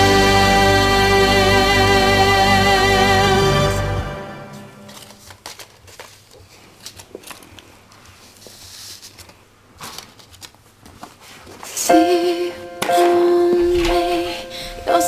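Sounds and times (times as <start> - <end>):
paper being folded and creased: 4.9 - 11.7.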